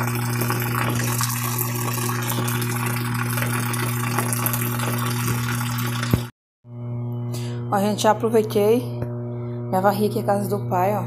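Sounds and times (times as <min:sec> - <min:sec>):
water pouring into washing machine: 0:00.0 - 0:06.3
constant low hum: 0:06.7 - 0:11.0.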